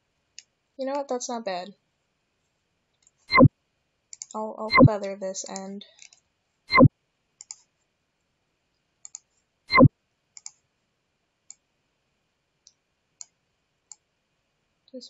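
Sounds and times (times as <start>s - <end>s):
computer mouse clicking: 4.1s - 4.9s, 5.5s - 7.6s, 9.0s - 10.6s.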